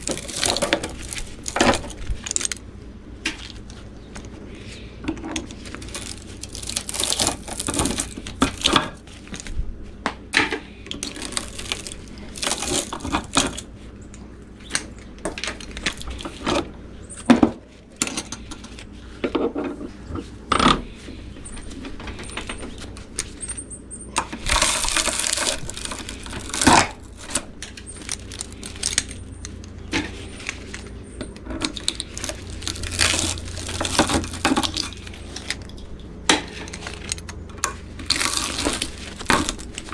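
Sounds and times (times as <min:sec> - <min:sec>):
metallic clinks and rattles: 0:21.4 - 0:29.7
wire scraping on metal: 0:22.2 - 0:39.9.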